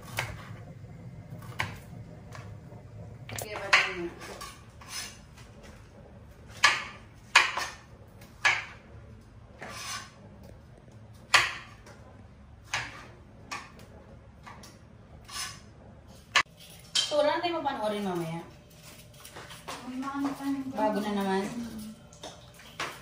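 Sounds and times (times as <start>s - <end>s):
knife on cutting board: 9.6s - 10.2s.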